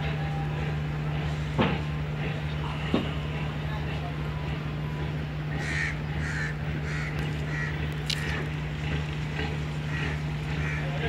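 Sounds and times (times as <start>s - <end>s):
low machine hum: 0.0s - 11.0s
crow cawing: 5.6s - 8.4s, 9.9s - 10.9s.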